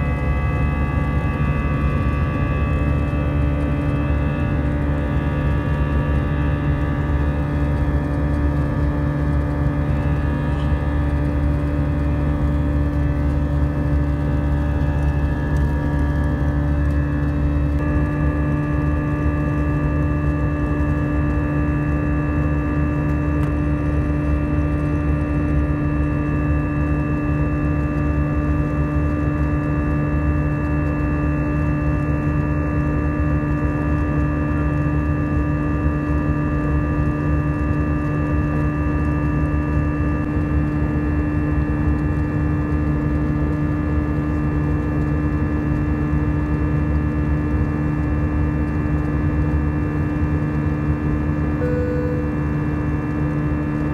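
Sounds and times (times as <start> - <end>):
airliner cabin rumble: 0.0 - 26.1.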